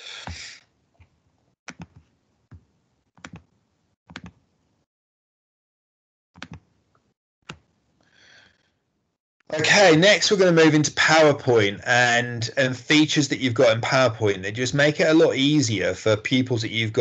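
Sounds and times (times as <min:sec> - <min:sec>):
keyboard and mouse clicks: 0:01.0 - 0:03.5, 0:04.1 - 0:04.4, 0:06.4 - 0:06.6.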